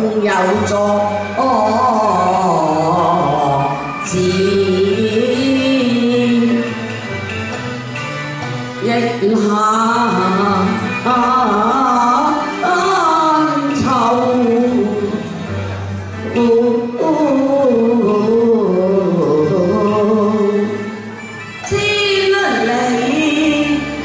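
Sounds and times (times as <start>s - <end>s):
instrumental accompaniment: 0.0s - 24.0s.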